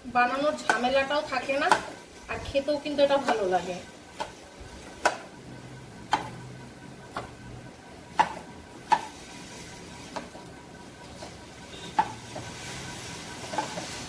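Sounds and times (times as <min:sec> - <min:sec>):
metal spatula knocking on pan: 0:00.6 - 0:01.0, 0:01.6 - 0:02.0.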